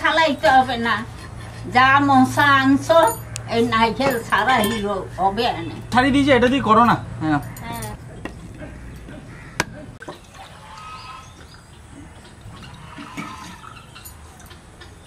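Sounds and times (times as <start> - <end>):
coconut water trickling: 7.9 - 15.0.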